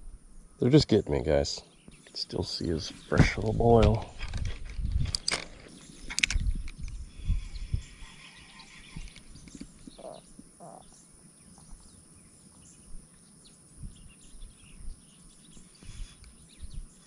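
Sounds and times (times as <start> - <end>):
low thumps: 2.8 - 5.6
faint bird chirps: 5.6 - 17.0
short low bird calls: 6.8 - 11.0.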